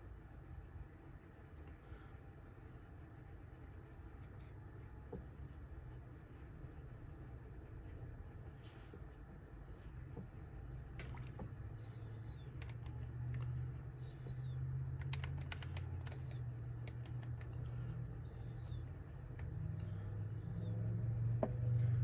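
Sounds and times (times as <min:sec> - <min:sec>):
low steady hum: 0:00.0 - 0:22.0
light clicks and taps: 0:10.0 - 0:17.9.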